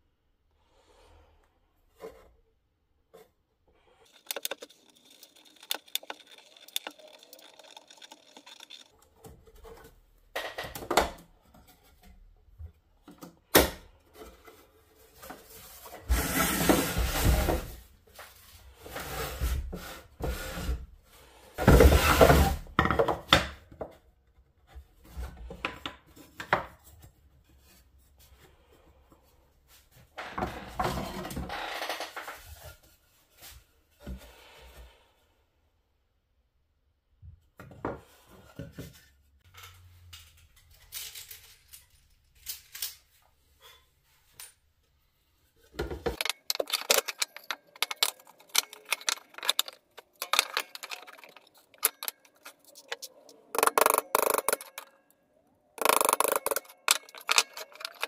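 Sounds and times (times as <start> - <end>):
wood rubbing and scraping: 3.2 - 10.2, 14.2 - 20.8, 45.7 - 55.1, 55.8 - 58.0.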